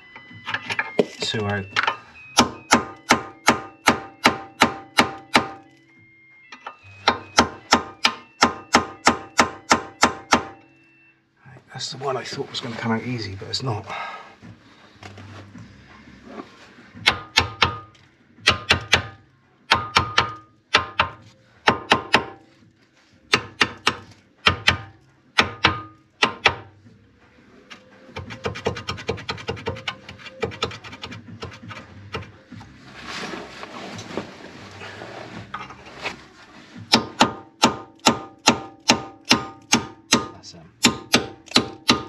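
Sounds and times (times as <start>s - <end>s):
hammer striking steel: 0.7s - 5.7s, 6.6s - 10.6s, 17.0s - 22.4s, 23.3s - 26.7s, 36.9s - 42.0s.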